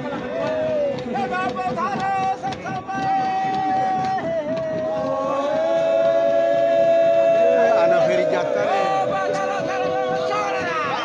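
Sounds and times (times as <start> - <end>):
group of voices chanting: 3.0 - 11.0.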